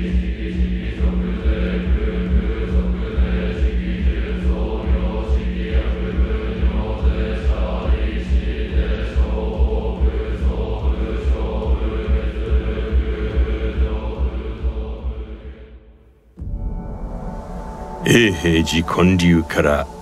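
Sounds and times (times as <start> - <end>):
monks chanting in unison: 0.0 - 15.7.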